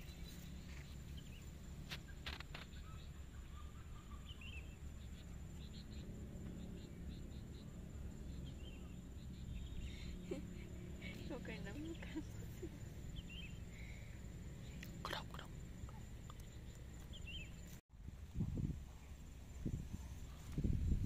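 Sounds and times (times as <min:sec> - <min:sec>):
sharp clicks: 0:01.9 - 0:02.8.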